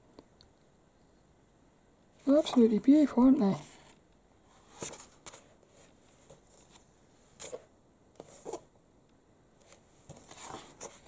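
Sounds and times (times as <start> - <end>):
magazine paper rustling: 9.7 - 11.0.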